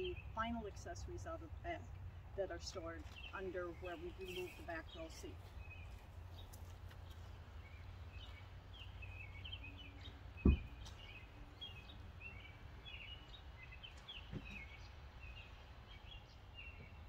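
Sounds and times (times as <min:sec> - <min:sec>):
birds chirping: 0:00.0 - 0:17.0
low outdoor rumble: 0:00.0 - 0:17.0
soft knock: 0:10.4 - 0:10.8.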